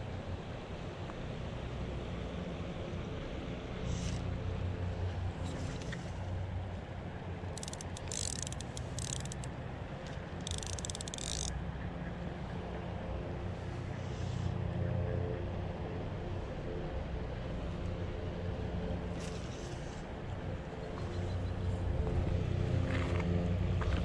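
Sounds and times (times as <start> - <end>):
fishing reel rasping clicks: 7.5 - 9.5, 10.1 - 11.6.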